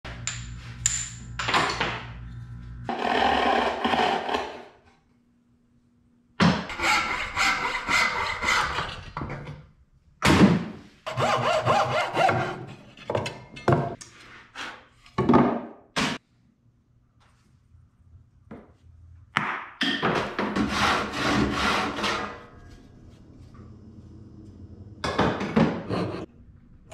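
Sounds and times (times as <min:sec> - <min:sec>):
bow saw rasping through board: 0:06.7 - 0:09.0, 0:11.1 - 0:12.6, 0:20.6 - 0:22.4.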